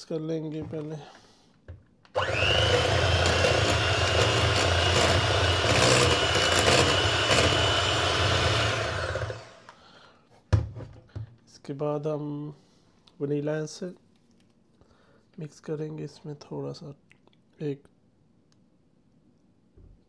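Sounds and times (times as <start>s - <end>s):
electric hand mixer whisking: 2.2s - 9.7s.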